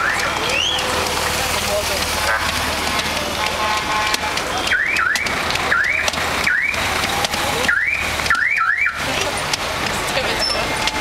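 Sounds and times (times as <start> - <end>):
motorcycle siren whoops: 4.6 - 6.9, 7.5 - 9.1.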